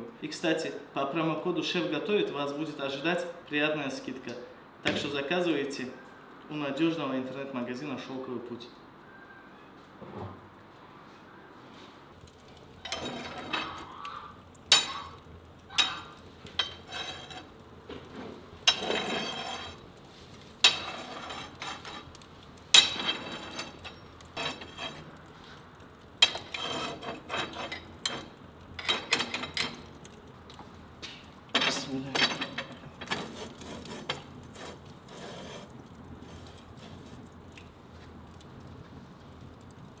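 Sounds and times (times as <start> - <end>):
logs clanking on iron grate: 12.3 - 37.7.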